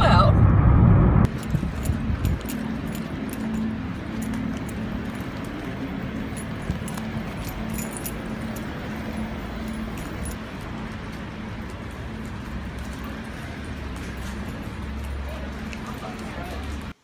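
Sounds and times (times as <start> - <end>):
street background: 0.0 - 17.0
light high clicks and jingling: 1.3 - 10.6
flip-flop footsteps on brick: 1.3 - 17.0.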